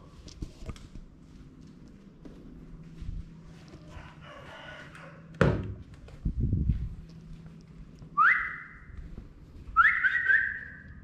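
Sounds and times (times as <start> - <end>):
cockatiel whistling: 9.8 - 10.9.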